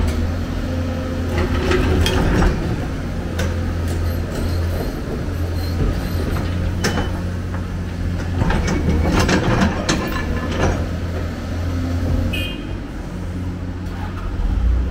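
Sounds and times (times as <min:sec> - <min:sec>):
excavator diesel engine running: 0:00.0 - 0:14.9
rubble scraping and clattering: 0:01.3 - 0:11.3.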